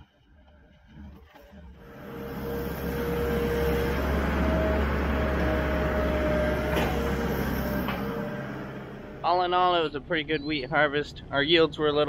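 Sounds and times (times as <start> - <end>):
farm machinery engine running: 1.8 - 10.0.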